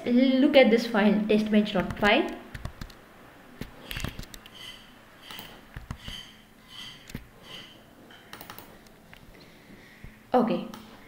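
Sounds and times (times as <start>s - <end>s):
computer mouse clicks: 1.8s - 3.0s, 3.6s - 4.6s, 5.2s - 6.2s, 8.3s - 9.3s
soft breathing: 8.7s - 11.0s.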